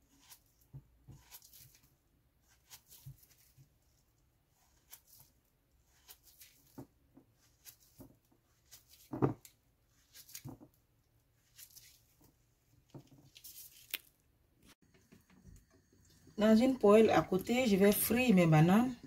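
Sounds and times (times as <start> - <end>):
knife slicing soft fruit: 0.0 - 12.2.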